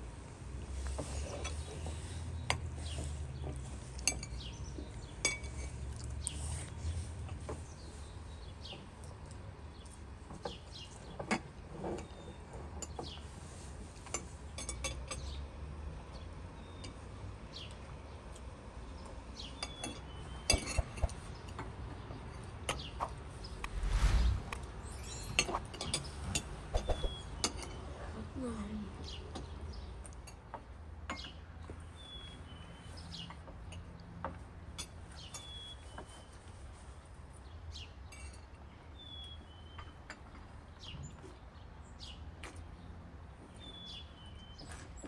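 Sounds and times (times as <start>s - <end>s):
short rush of noise: 23.5s - 25.7s
birds chirping: 26.8s - 27.5s.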